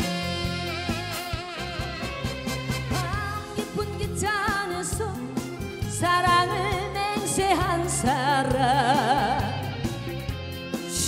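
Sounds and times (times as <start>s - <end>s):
instrumental accompaniment: 0.0s - 11.0s
woman singing into microphone: 2.9s - 9.8s.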